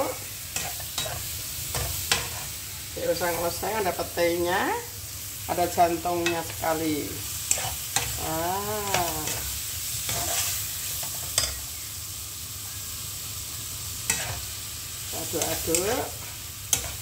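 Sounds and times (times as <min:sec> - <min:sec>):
vegetables sizzling in a wok: 0:00.0 - 0:17.0
spatula stirring: 0:07.4 - 0:11.6, 0:14.1 - 0:14.5, 0:15.3 - 0:17.0.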